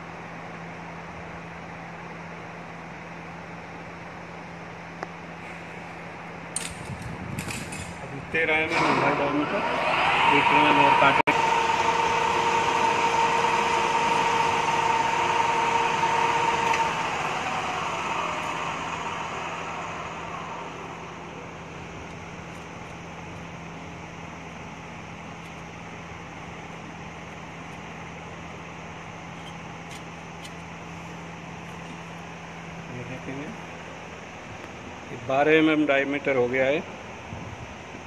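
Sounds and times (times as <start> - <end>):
low machine hum: 0.0 - 38.0
lathe running with a steady whine: 8.1 - 38.0.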